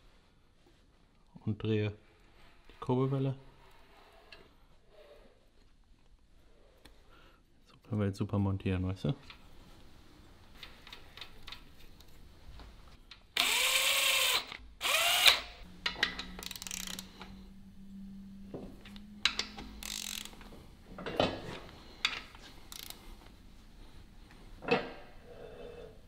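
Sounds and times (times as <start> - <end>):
electric ratchet whirring: 13.4 - 15.6, 16.4 - 17.2, 19.8 - 20.4
tools clicking on metal: 15.3 - 17.4, 19.2 - 20.4
low steady hum: 15.6 - 22.4.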